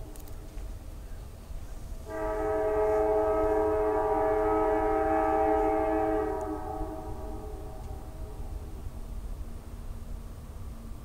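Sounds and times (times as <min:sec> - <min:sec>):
locomotive air horn blast: 0:02.0 - 0:08.7.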